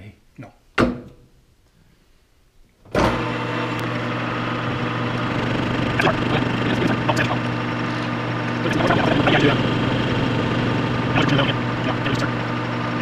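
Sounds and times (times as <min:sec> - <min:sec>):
metal lathe motor humming: 0:03.7 - 0:13.0.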